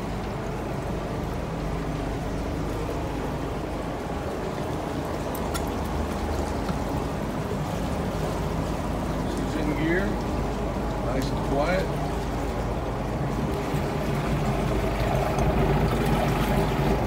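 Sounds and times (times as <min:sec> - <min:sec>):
boat engines idling: 0:00.0 - 0:17.0
water churning and splashing: 0:00.0 - 0:17.0.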